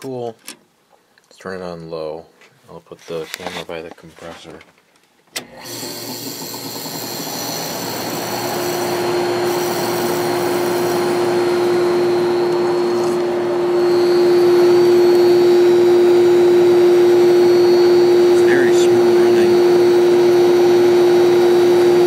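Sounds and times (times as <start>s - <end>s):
compressor humming: 5.4s - 22.0s.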